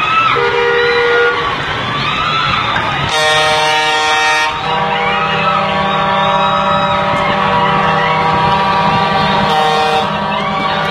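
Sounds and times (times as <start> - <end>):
car horn: 0.3 - 1.4, 3.0 - 10.9.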